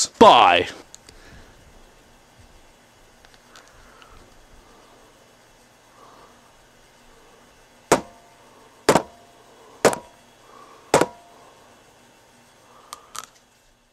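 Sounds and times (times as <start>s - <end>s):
sharp ringing knocks: 7.9s - 8.2s, 8.9s - 9.2s, 9.8s - 10.1s, 10.9s - 11.3s.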